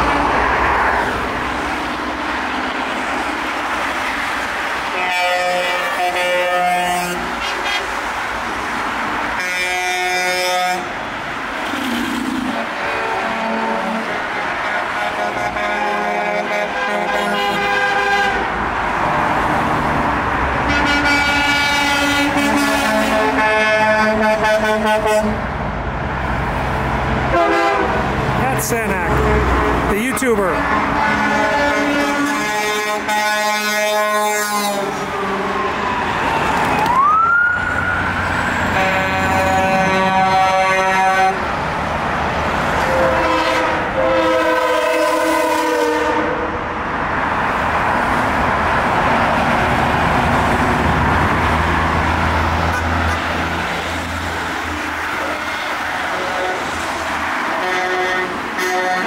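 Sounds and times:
passing vehicles rushing: 0.0 - 59.0
vehicle horns honking: 4.9 - 8.0, 9.4 - 10.9, 12.6 - 18.5, 20.6 - 25.4, 27.3 - 28.0, 30.4 - 35.4, 38.7 - 41.4, 42.8 - 46.4, 55.2 - 56.7, 57.6 - 59.0.

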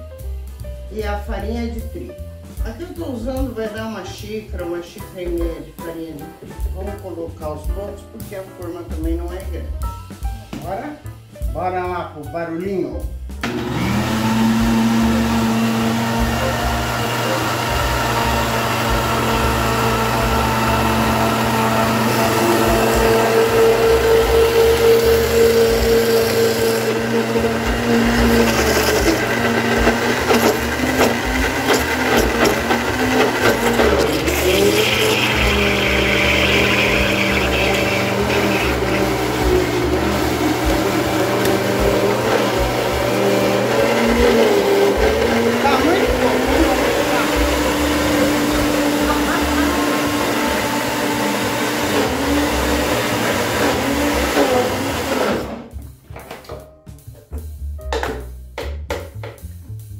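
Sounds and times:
blender motor running: 13.4 - 55.7.

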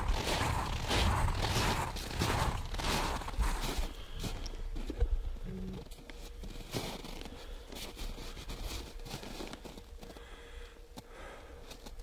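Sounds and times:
clothing and fur rustling: 0.0 - 4.1
boots crunching in snow: 0.0 - 4.9, 6.2 - 10.2.

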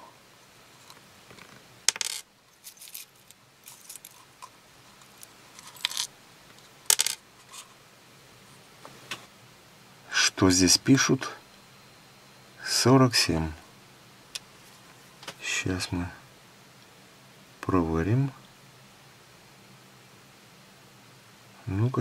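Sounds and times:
small metal parts clinking: 1.9 - 6.1, 6.9 - 7.6.

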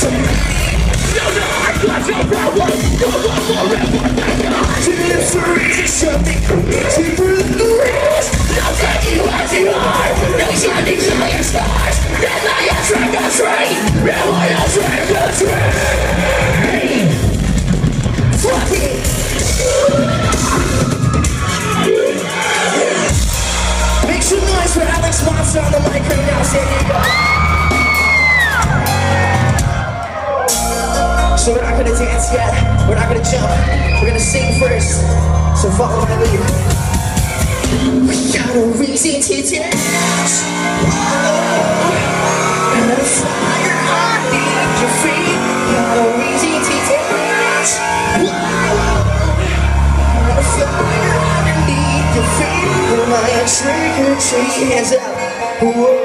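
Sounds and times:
person singing: 0.0 - 17.2, 37.9 - 56.0
live band playing loudly: 0.0 - 56.0
heavy sustained bass notes: 47.9 - 54.5.

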